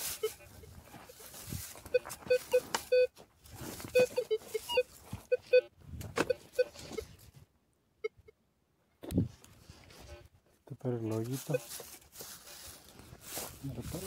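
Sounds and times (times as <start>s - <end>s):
metal detector short low beeps: 0.0s - 3.2s, 3.8s - 7.2s, 11.4s - 11.7s
dry leaves rustling: 0.0s - 5.5s, 11.1s - 14.0s.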